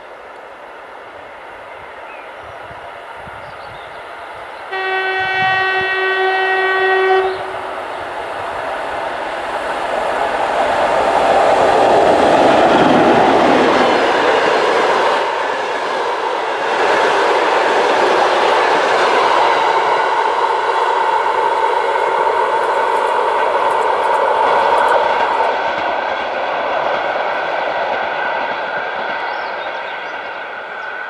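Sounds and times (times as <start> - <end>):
coaches clickety-clack on rails: 0.0 - 31.0
diesel locomotive passing: 0.0 - 31.0
locomotive horn blast: 4.7 - 7.7.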